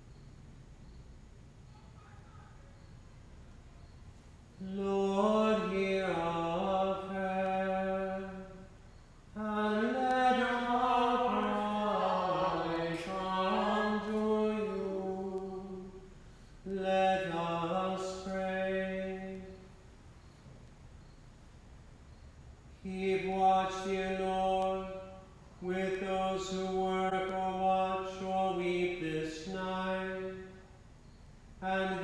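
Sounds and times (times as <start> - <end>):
single voice chanting: 4.6 - 8.7, 9.4 - 19.7.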